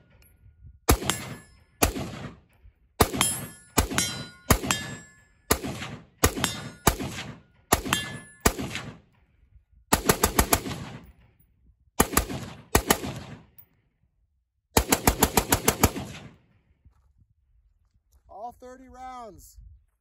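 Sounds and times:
rifle shots with echo: 0.9 - 11.4, 12.0 - 13.6, 14.8 - 16.7.

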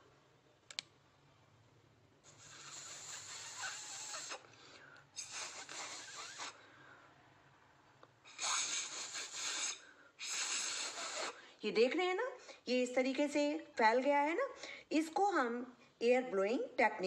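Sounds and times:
breath blown through pen barrel: 2.2 - 6.7, 8.3 - 11.5.

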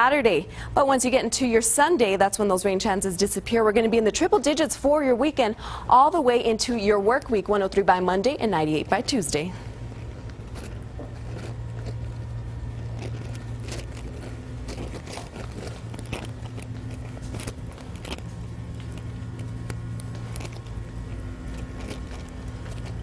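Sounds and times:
low electrical hum: 0.0 - 23.0
sharp clicks and crackles: 10.1 - 23.0.

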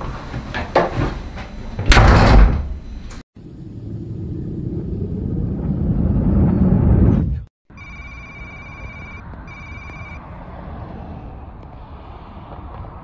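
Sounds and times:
door slamming shut: 1.8 - 2.8
low rumbling drone: 3.4 - 7.5.

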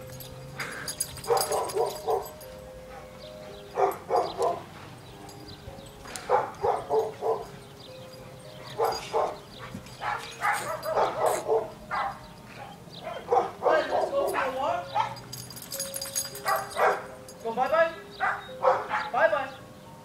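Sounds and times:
dog barking: 1.3 - 2.4, 3.8 - 4.7, 6.2 - 7.5, 8.6 - 15.2, 16.4 - 17.1, 18.2 - 19.2.

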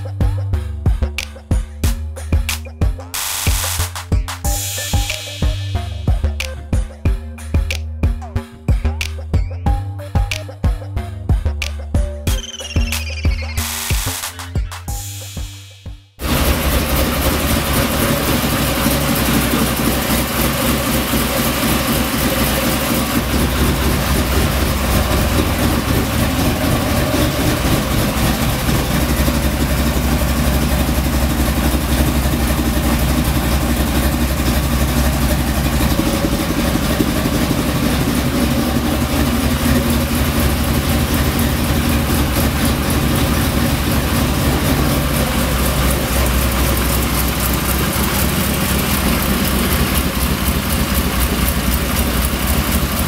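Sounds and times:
car engine idling: 16.2 - 53.0.

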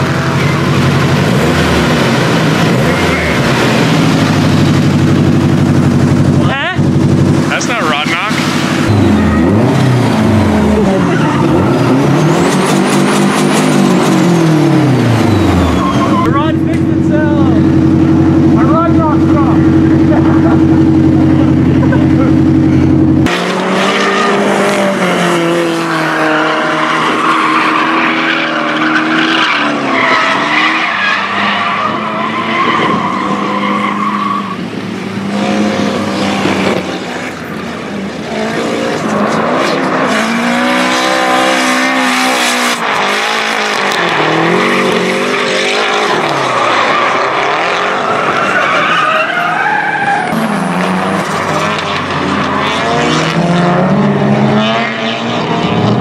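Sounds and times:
car engines revving: 0.0 - 56.0
tyres squealing: 14.0 - 16.4, 43.8 - 51.6.

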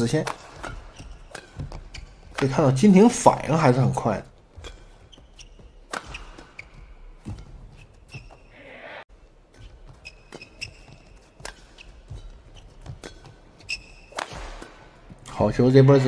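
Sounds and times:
racket striking shuttlecock: 0.2 - 3.5, 4.5 - 8.3, 9.6 - 15.1
shoe squeaks on court floor: 0.6 - 2.4, 4.6 - 8.6, 9.6 - 14.6.

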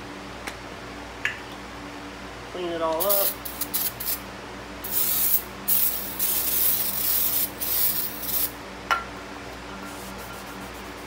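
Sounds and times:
aerosol spray hissing: 4.9 - 8.5.

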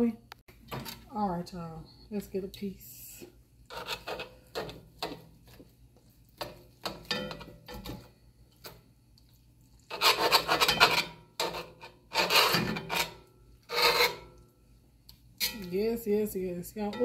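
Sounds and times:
knife scraping skillet: 3.7 - 5.6, 9.9 - 14.4, 15.4 - 15.8.

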